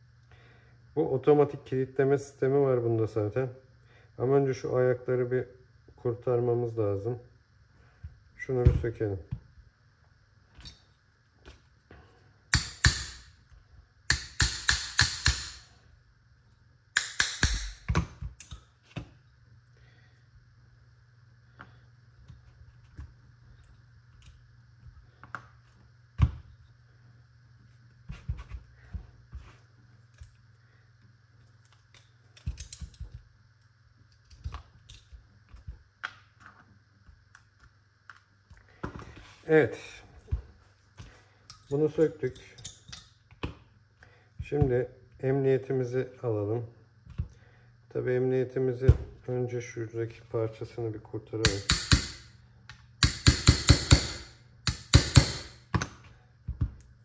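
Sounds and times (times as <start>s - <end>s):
hammer tapping metal punch: 12.5s - 13.3s, 14.1s - 15.6s, 17.0s - 18.5s, 51.4s - 52.3s, 53.0s - 55.6s.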